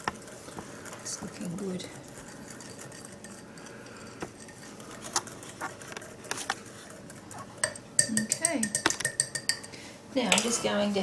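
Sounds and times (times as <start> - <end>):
whisk clicking against ceramic bowl: 1.1 - 4.8, 5.9 - 9.8.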